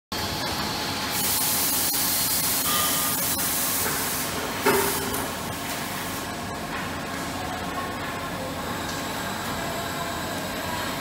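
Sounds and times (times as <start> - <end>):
steady machinery noise: 0.1 - 11.0
hiss of released air: 1.1 - 5.2.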